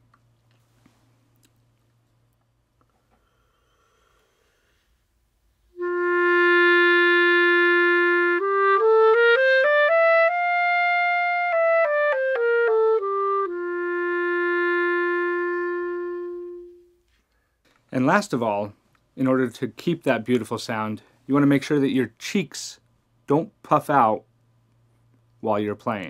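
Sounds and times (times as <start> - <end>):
clarinet playing a scale: 5.8 - 17.0.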